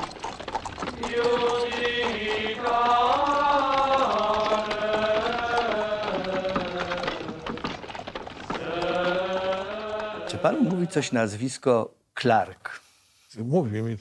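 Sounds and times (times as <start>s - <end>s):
voices chanting in harmony: 1.0s - 7.7s, 8.5s - 11.3s.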